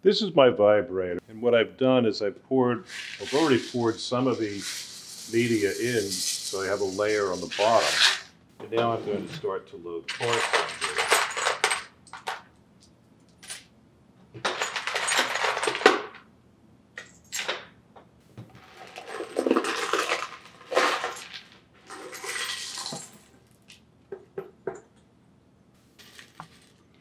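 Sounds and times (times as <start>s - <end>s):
metal parts clattering: 2.9s - 6.6s, 10.1s - 12.4s, 14.4s - 16.2s, 18.8s - 23.2s.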